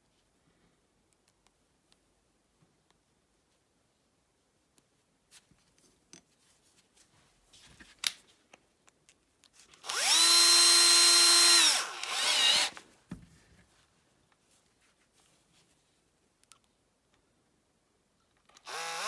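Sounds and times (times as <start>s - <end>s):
power drill whining: 9.8s - 12.8s, 18.6s - 19.0s.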